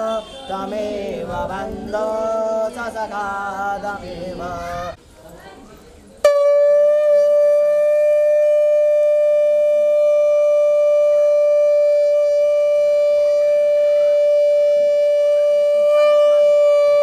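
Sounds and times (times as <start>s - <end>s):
conch shell blown: 0.0s - 0.7s, 6.2s - 17.0s.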